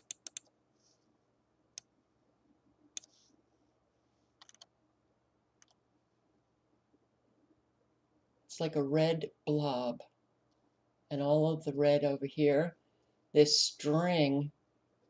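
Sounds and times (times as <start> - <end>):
computer mouse clicks: 0.0 - 0.5, 2.9 - 3.2, 4.4 - 4.7, 5.6 - 5.8.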